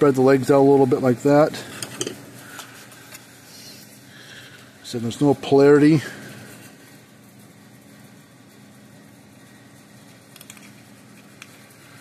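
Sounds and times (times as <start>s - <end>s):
faint workshop hum: 0.0s - 12.0s
small clicks of components: 10.3s - 11.6s.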